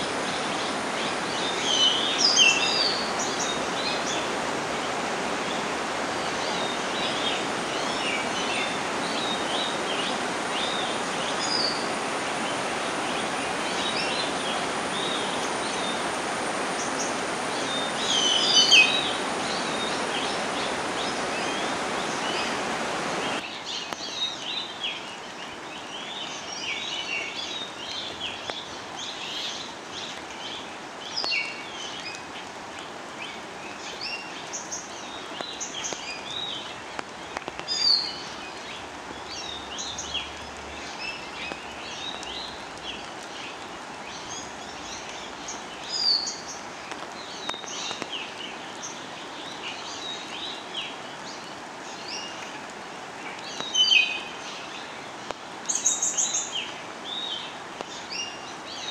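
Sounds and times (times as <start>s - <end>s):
small birds chirping: 5.5s - 32.3s.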